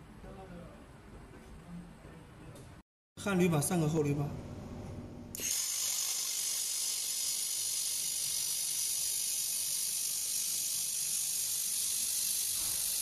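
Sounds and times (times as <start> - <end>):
laser welder hissing: 5.4 - 13.0.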